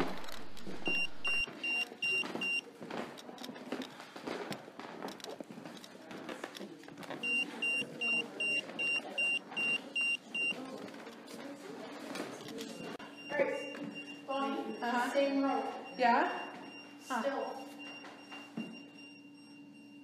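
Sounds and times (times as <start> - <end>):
short high-pitched alarm beeps: 13.2 - 20.0.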